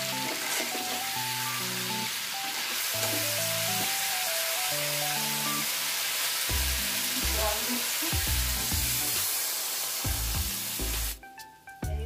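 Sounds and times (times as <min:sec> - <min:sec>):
vegetables sizzling in hot oil: 0:00.0 - 0:11.2
metal spatula stirring: 0:00.2 - 0:01.0.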